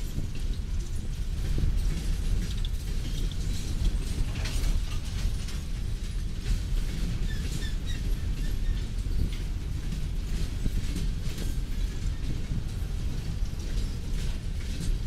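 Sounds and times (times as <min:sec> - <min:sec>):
freight train wheels rumbling: 0:00.0 - 0:15.0
wheels clicking and squeaking: 0:00.0 - 0:15.0.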